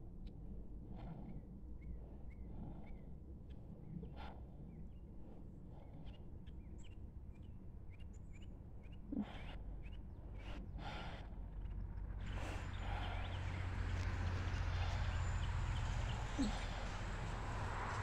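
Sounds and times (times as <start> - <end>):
steady low rumble: 0.0 - 18.0
small birds chirping: 11.6 - 17.1.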